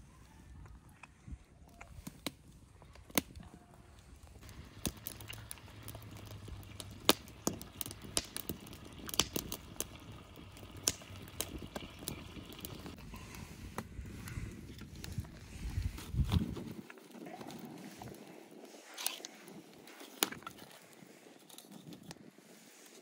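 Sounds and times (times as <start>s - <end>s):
sharp clicks and crackles: 0.6s - 13.0s.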